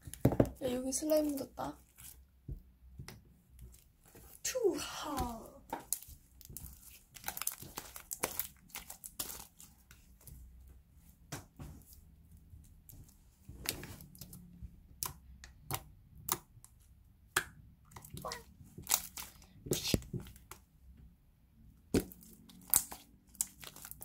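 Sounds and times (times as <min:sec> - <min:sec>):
slime crackling and popping: 0:05.2 - 0:10.0, 0:17.9 - 0:20.6, 0:21.9 - 0:24.0.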